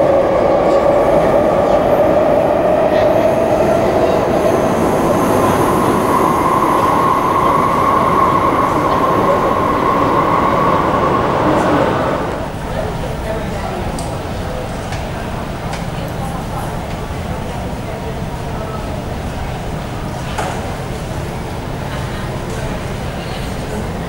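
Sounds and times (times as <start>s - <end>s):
held train tone: 0.0s - 12.6s
electric train rumbling: 0.0s - 24.0s.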